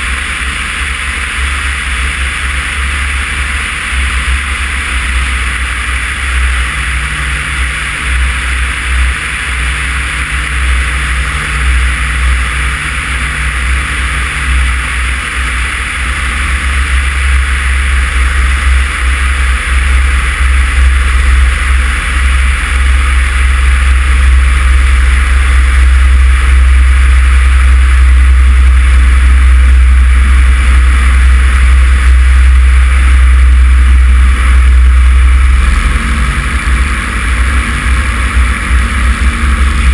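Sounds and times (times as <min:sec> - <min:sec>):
light aircraft engine running: 0:00.0 - 0:39.9
wind rush on microphone: 0:00.0 - 0:39.9.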